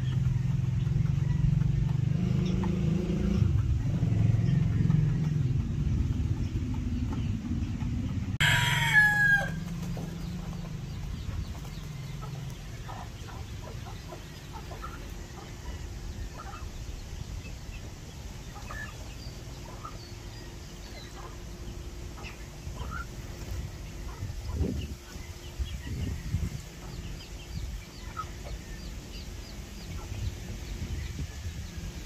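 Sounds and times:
low rumble: 0.0s - 8.4s, 9.5s - 32.0s
chicken chirps and clucks: 0.0s - 32.0s
rooster crowing: 8.4s - 9.7s.

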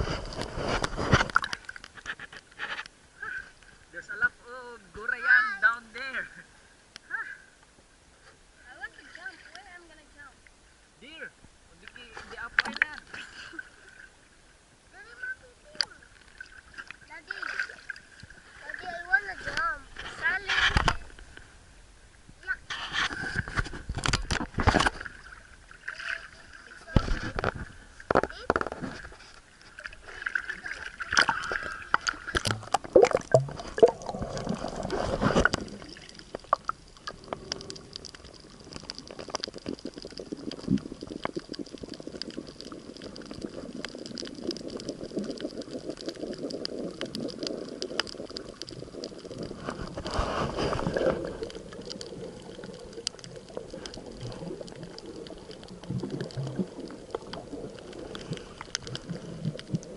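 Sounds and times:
splashing and rushing water: 0.0s - 2.8s, 15.2s - 21.2s, 22.7s - 59.9s
faint underwater clicks: 0.1s - 3.8s, 9.0s - 10.6s, 11.4s - 14.1s, 15.6s - 21.5s, 22.3s - 59.9s
muffled underwater hush: 17.9s - 59.9s.

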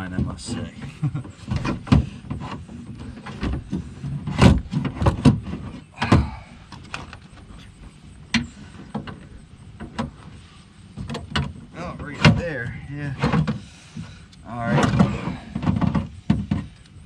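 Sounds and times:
metal clunks and rattles in car door: 0.0s - 7.4s, 11.0s - 12.6s, 13.2s - 16.8s.

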